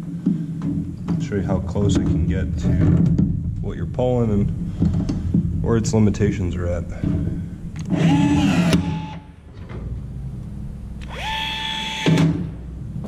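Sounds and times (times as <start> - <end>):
rivet tool motor whine: 7.9 - 9.3, 11.0 - 12.5.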